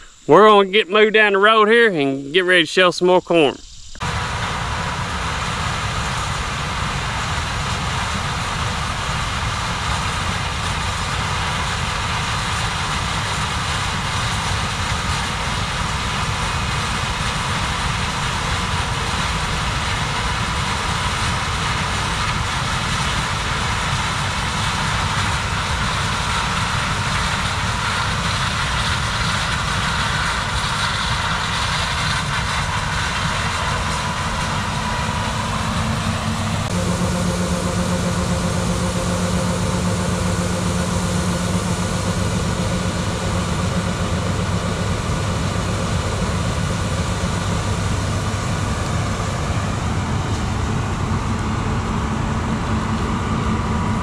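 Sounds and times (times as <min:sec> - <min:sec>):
farm machinery engine running: 0:04.0 - 0:54.0
steady low tone: 0:33.8 - 0:54.0.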